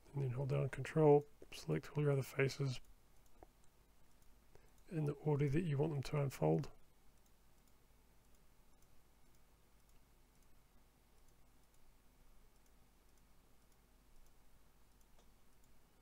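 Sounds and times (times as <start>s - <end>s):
faint computer mouse clicks: 7.1s - 10.6s, 12.5s - 15.8s.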